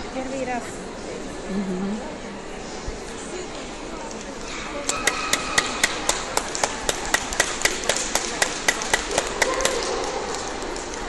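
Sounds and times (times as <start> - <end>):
hand clapping: 4.9 - 11.0.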